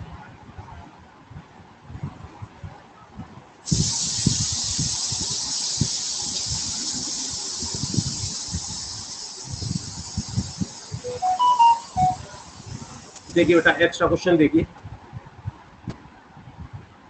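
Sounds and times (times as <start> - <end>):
loud high-pitched hiss: 3.7 - 14.0.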